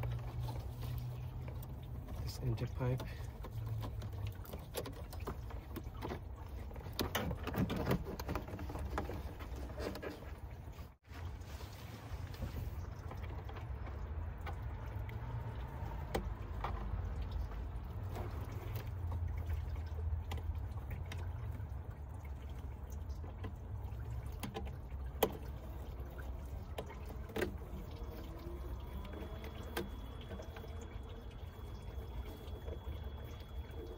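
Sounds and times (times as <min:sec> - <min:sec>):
low steady rumble: 0:08.5 - 0:33.9.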